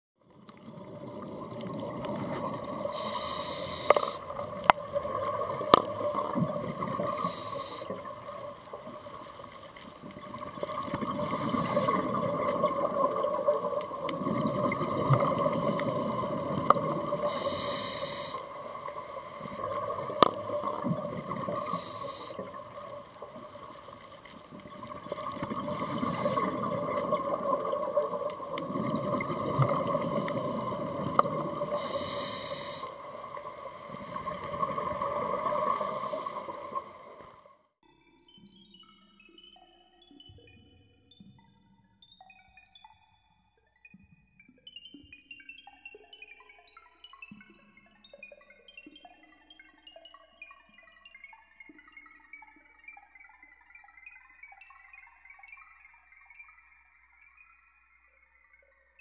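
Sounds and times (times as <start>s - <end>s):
water sounds in slow waves: 0.2s - 38.1s.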